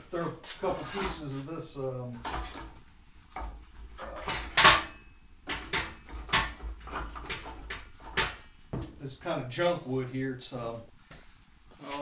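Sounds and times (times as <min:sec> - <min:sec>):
wood pieces clattering on metal: 0:03.4 - 0:08.5.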